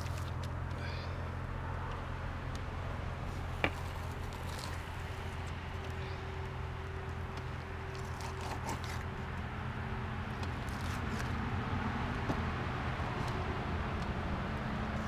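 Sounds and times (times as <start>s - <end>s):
fish skin scraping: 3.3s - 5.5s, 7.9s - 9.1s, 10.6s - 11.4s.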